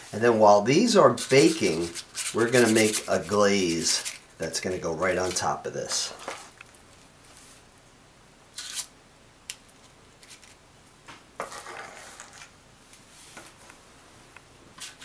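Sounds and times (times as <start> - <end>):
spoon scraping metal bowl: 1.2 - 4.2.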